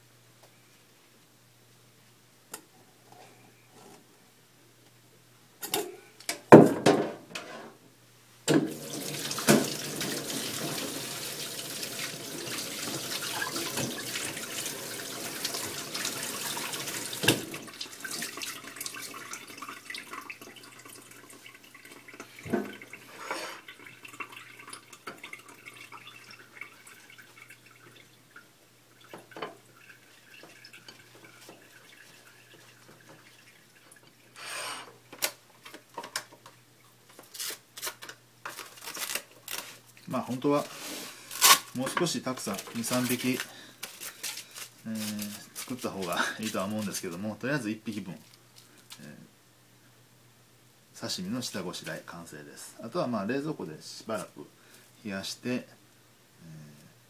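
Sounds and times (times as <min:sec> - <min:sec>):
kitchen tap running: 0:08.5 - 0:35.3.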